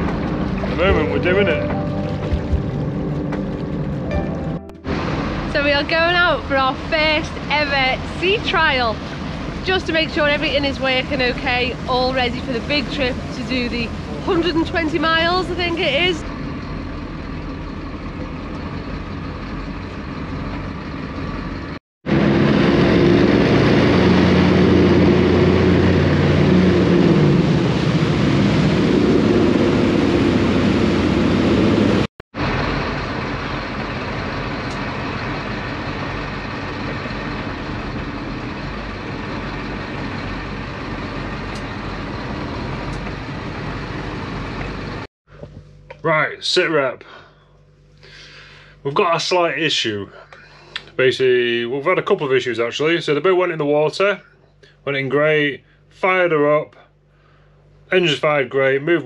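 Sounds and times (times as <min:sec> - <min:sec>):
boat engines running: 0:00.0 - 0:46.0.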